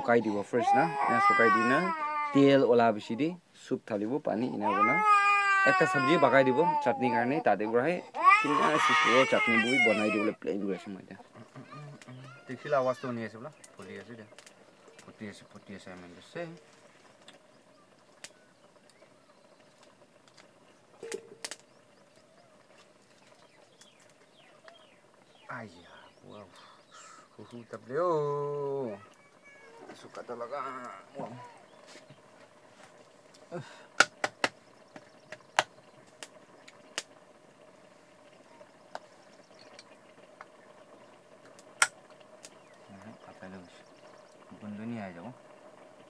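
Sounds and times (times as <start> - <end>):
pot boiling: 0.0 - 46.0
wood fire clicks and snaps: 13.5 - 15.2, 19.7 - 24.8, 34.0 - 37.2, 41.4 - 42.9.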